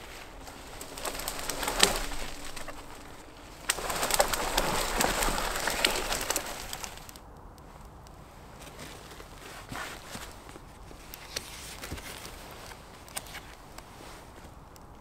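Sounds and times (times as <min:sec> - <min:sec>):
twig snapping: 0:00.0 - 0:08.2
dry tinder crackly rustling: 0:00.0 - 0:15.0
rustling in forest litter: 0:00.0 - 0:15.0.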